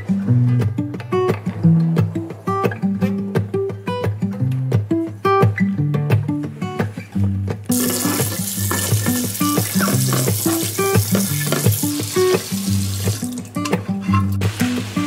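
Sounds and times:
background music: 0.0 - 15.0
tap water running into sink: 7.7 - 13.8
sponge scrubbing grill pan: 7.8 - 13.3.

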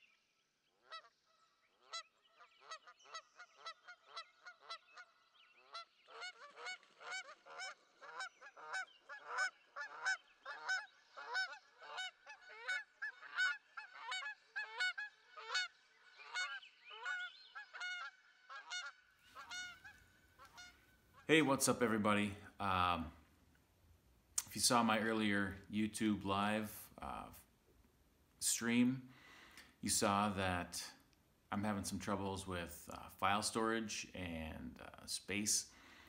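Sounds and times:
geese honking: 0.8 - 21.8.

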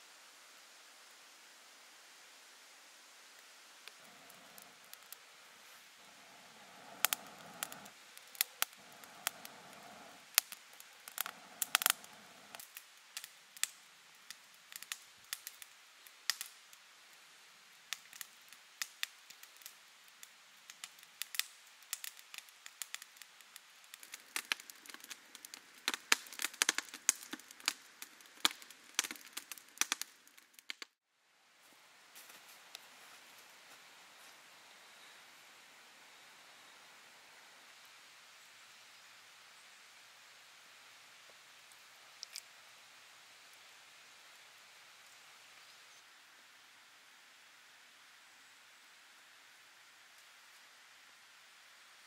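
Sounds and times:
wood fire crackling and popping: 3.4 - 16.9, 17.7 - 31.0, 42.1 - 42.5
person blowing on flames: 3.9 - 12.8.

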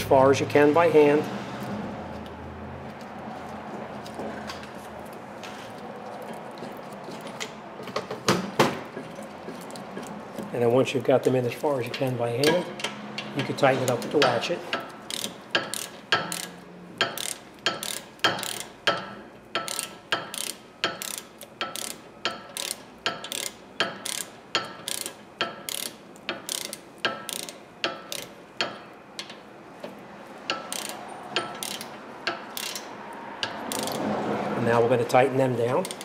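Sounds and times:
ratchet wrench clicking: 11.8 - 29.4, 30.4 - 34.1, 35.6 - 36.0.

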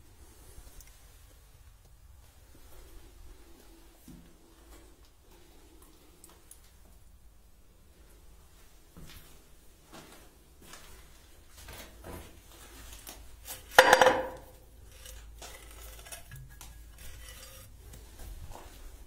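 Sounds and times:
faint scraping and handling: 14.4 - 19.0.

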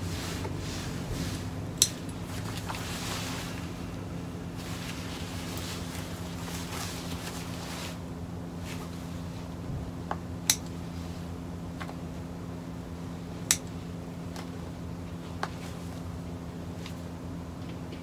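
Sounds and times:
fabric rustling: 0.0 - 9.5
scissors snipping: 1.8 - 2.1.

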